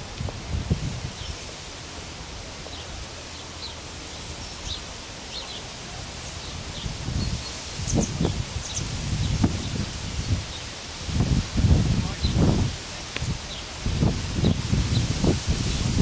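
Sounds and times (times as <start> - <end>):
wind rumble on microphone: 0.0 - 1.6, 6.0 - 16.0
steady rustling hiss: 0.0 - 16.0.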